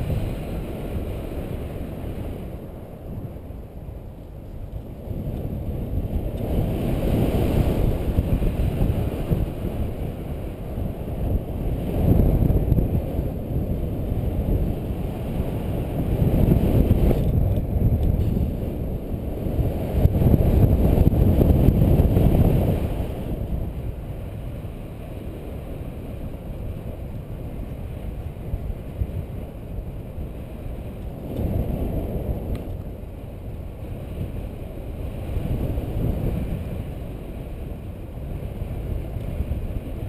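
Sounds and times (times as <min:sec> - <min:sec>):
wind buffeting microphone: 0:00.0 - 0:40.0.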